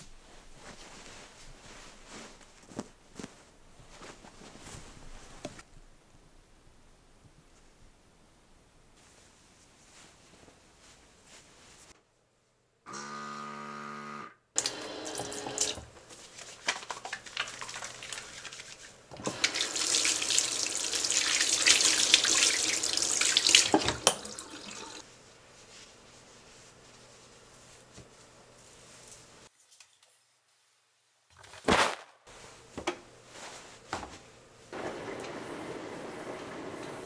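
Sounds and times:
soap dispenser motor humming: 12.9 - 15.9, 19.1 - 22.2
faucet water running onto hands: 14.6 - 15.8, 16.6 - 25.0.

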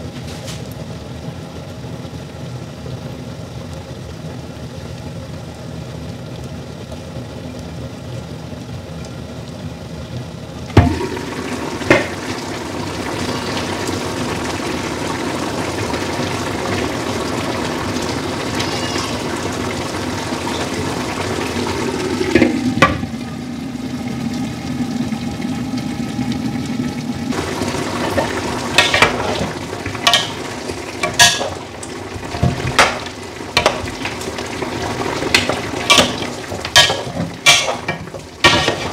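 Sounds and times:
stew simmering and sizzling: 0.0 - 38.9
knocks and clinks against pan: 30.1 - 30.4, 31.0 - 31.6, 35.3 - 38.9.

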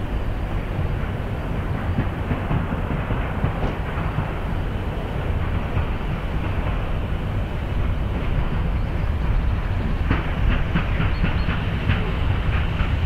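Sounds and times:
steam locomotive rumbling: 0.0 - 13.0.

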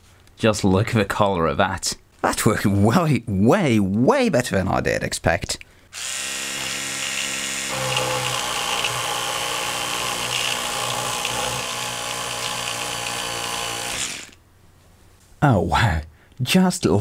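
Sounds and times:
electric toothbrush buzzing: 6.0 - 14.4.

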